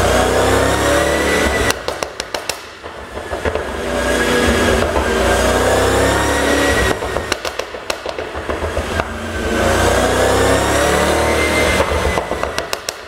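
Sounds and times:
car engine revving: 0.0 - 13.0
exhaust pops and crackles: 1.6 - 3.8, 6.9 - 9.2, 11.8 - 13.0.

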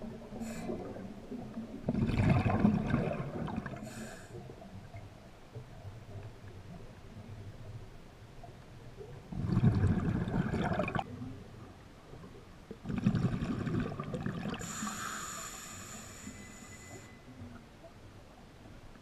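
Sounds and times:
diver's breath bubbling underwater: 1.9 - 4.1, 9.3 - 11.0, 12.8 - 15.0.

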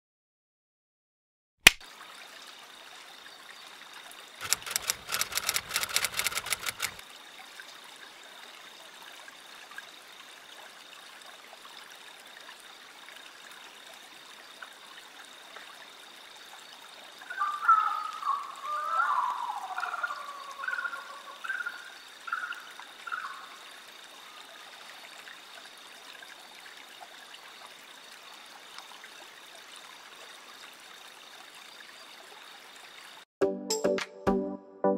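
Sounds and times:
water trickling in a pond: 1.8 - 33.3
rapid clattering rattle: 4.4 - 7.0
robot motors whirring: 4.4 - 7.0.

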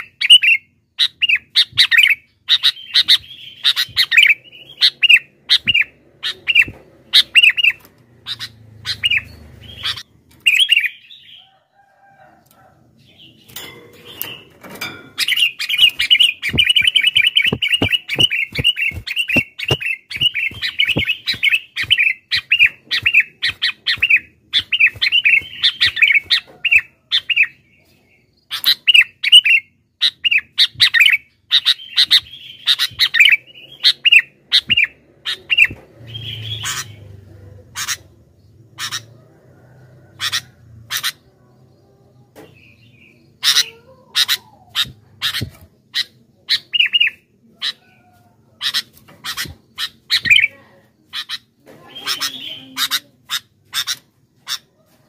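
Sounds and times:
bulbul chirping: 0.0 - 11.0, 15.2 - 27.6.

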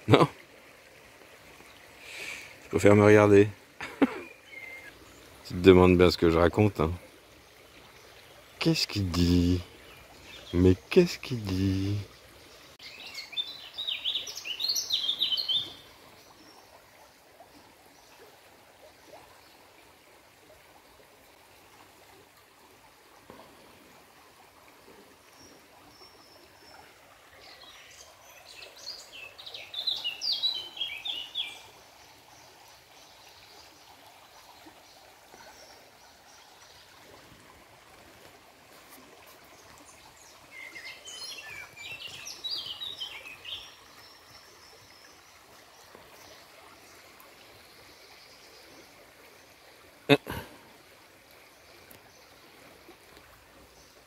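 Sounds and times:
stream trickling over stones: 0.0 - 54.0
songbird chirping: 1.6 - 16.8, 25.2 - 37.4, 38.2 - 50.5.

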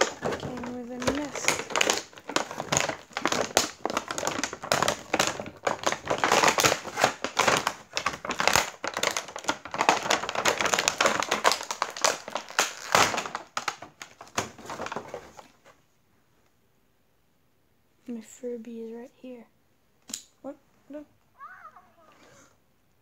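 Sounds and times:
plastic packaging crinkling: 0.0 - 15.7.

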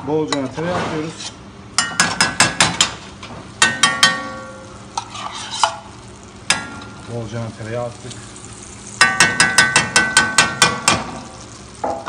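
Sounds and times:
butter sizzling: 1.4 - 12.0
metal spoon rapping frying pan: 1.8 - 3.0, 3.6 - 5.8, 8.9 - 12.0.

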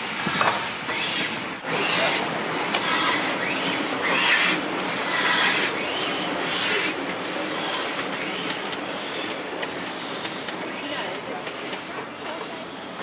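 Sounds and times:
railway wagon wheels rumbling: 1.4 - 13.0.

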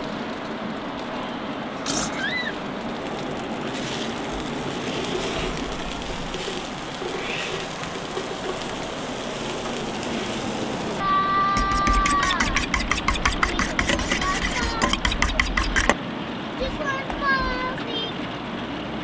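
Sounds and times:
vegetables sizzling on a griddle: 1.8 - 15.8.

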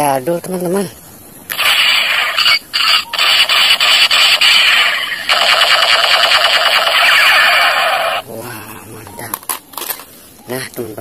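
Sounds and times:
toy gun electronic rattle: 1.5 - 8.2.

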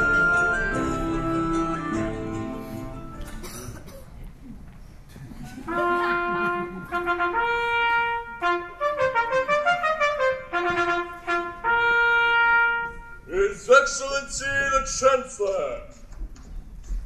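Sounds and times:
brass fanfare music: 0.0 - 3.4, 5.7 - 13.5.

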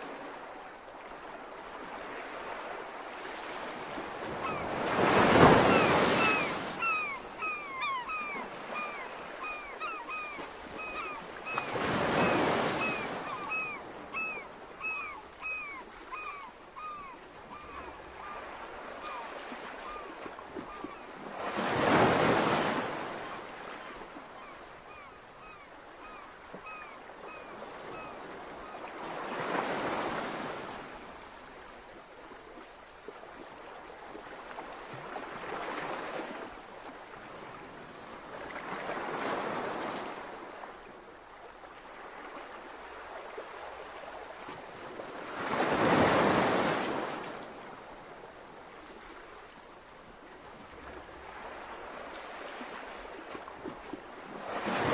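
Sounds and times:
sea waves surging: 0.0 - 15.8.

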